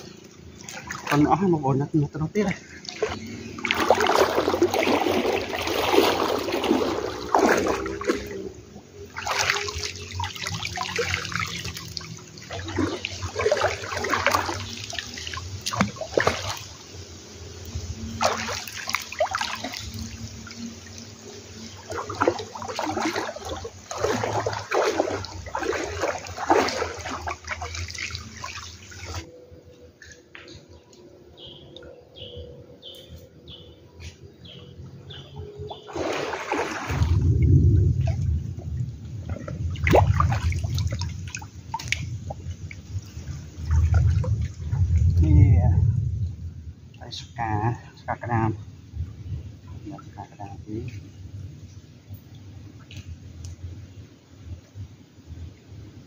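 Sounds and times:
wading through water splashing: 0.0s - 16.9s, 18.1s - 29.3s, 34.6s - 45.2s.

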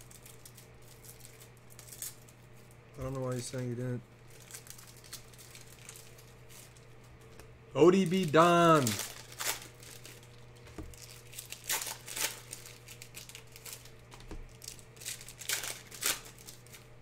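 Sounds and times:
faint steady hum: 0.0s - 17.0s
handling rustles and crinkles: 4.2s - 17.0s.

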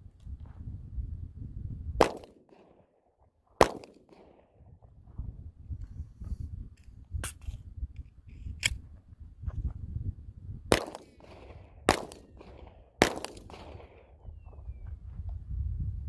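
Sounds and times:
handgun shots with echo: 2.0s - 2.9s, 3.6s - 4.5s, 10.7s - 14.2s.

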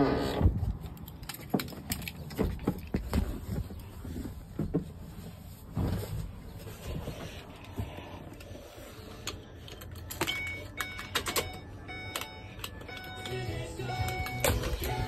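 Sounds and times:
music playing: 11.5s - 15.0s.

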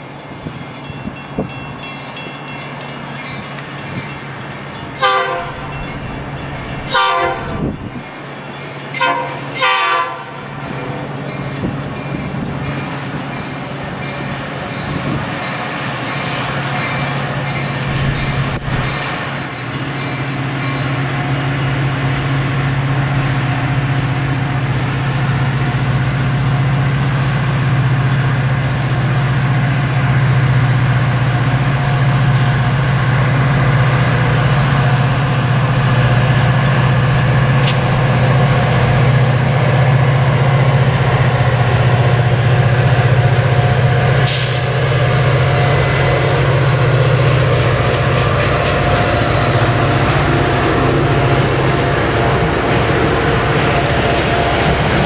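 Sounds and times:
diesel locomotive drone: 0.0s - 55.0s
train rumble: 0.0s - 55.0s
sharp click: 37.6s - 37.9s.

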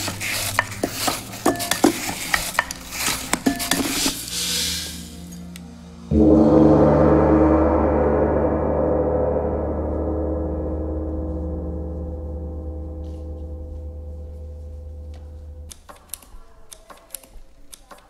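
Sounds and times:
gong ringing: 6.1s - 15.8s.

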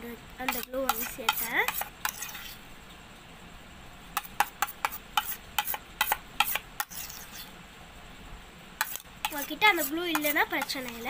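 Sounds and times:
spoon clicking and scraping metal bowl: 0.5s - 2.5s, 4.2s - 7.5s, 8.8s - 11.0s.

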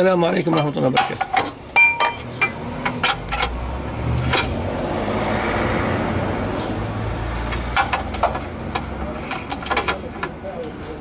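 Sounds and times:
vehicle engine rumbling: 0.0s - 11.0s.

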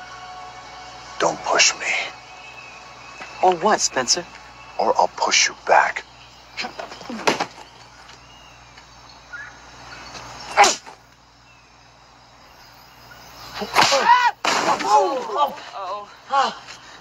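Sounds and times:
man's strained cries: 13.9s - 16.8s.

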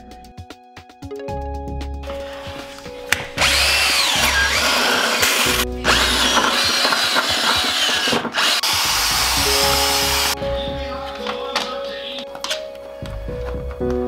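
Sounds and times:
electric drill boring through wood: 3.2s - 10.4s.

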